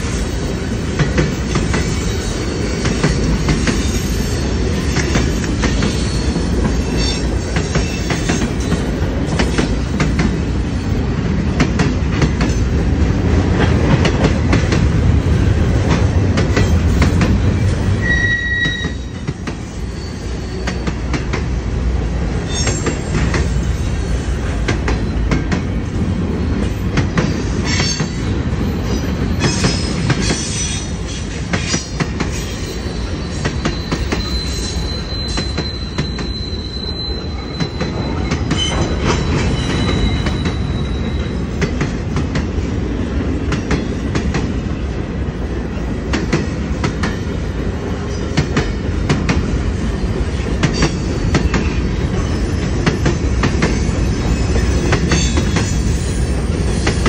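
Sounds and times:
train wheels rumbling on rails: 0:00.0 - 0:57.0
high wheel squeal: 0:03.6 - 0:08.7, 0:17.5 - 0:20.9, 0:22.4 - 0:24.4, 0:32.4 - 0:41.5, 0:53.8 - 0:57.0.

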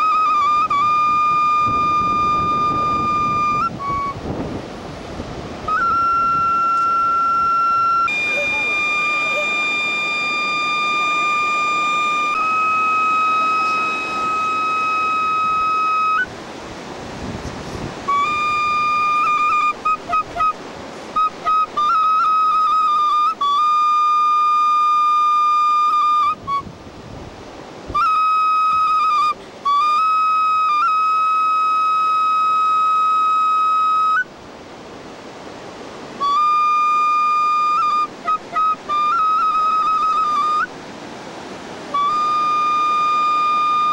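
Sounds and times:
solo flute playing: 0:00.0 - 0:16.4, 0:17.7 - 0:27.0, 0:27.8 - 0:34.4, 0:36.0 - 0:43.9
steady rushing noise: 0:00.3 - 0:23.2.

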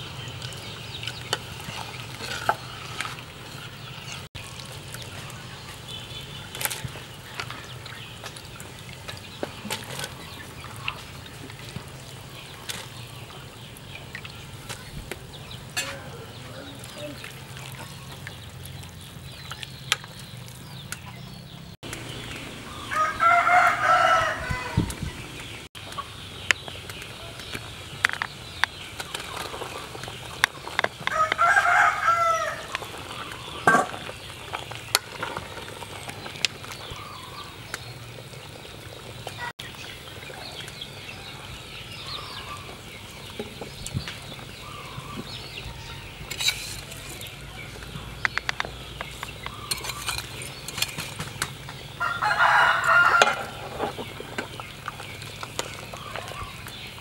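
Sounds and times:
stirring a boiling pot: 0:00.0 - 0:21.0, 0:26.3 - 0:42.0, 0:46.1 - 0:57.0
rooster crowing: 0:22.7 - 0:25.0, 0:31.1 - 0:32.7, 0:52.0 - 0:53.6.

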